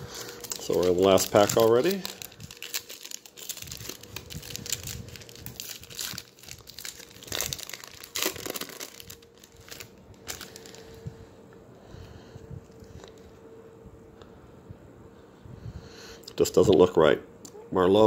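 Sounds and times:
foil wrapper crinkling: 0:00.0 - 0:11.1.

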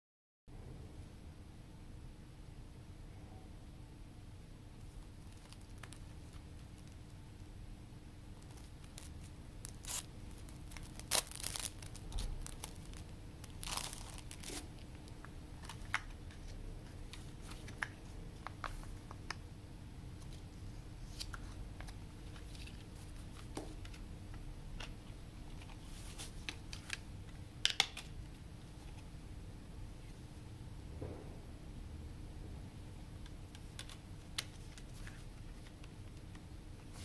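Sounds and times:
cellophane crinkling and tearing: 0:04.9 - 0:07.0, 0:08.4 - 0:17.9.

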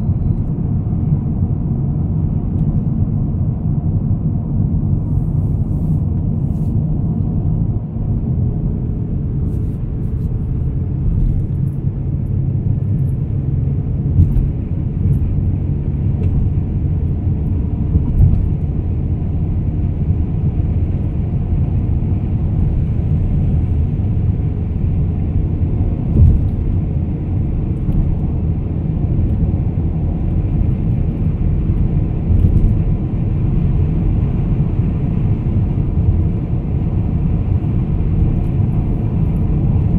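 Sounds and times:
car road and engine rumble: 0:00.0 - 0:39.9
car bumps: 0:14.1 - 0:15.4.

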